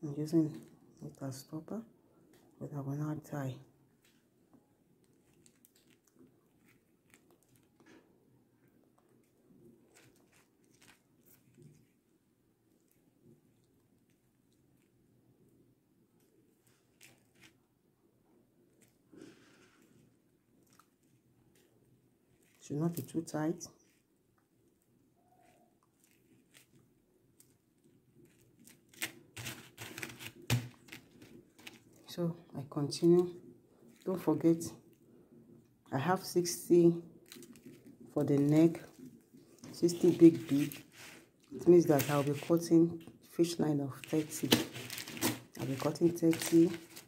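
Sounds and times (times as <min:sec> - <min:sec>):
rustling: 0:05.0 - 0:08.1, 0:09.1 - 0:15.0, 0:16.2 - 0:17.7, 0:23.8 - 0:32.1, 0:37.2 - 0:43.3, 0:43.9 - 0:47.0.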